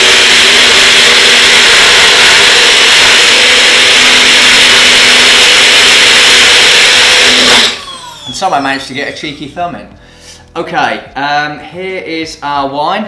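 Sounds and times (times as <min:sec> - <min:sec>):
blender blades churning liquid: 0:00.0 - 0:08.6
blender motor whirring: 0:00.0 - 0:09.2.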